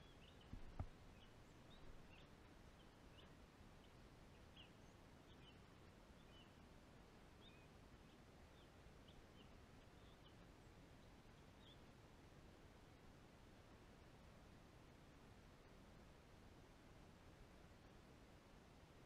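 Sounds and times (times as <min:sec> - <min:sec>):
small birds chirping: 0:00.0 - 0:11.9
faint low hiss: 0:00.0 - 0:19.0.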